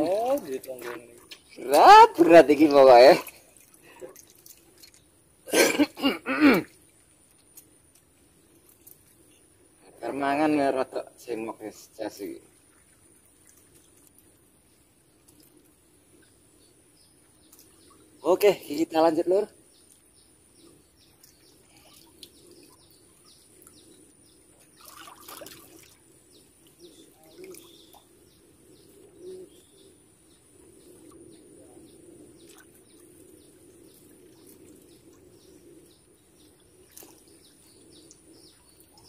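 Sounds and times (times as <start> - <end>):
faint birds chirping: 0.0 - 39.0.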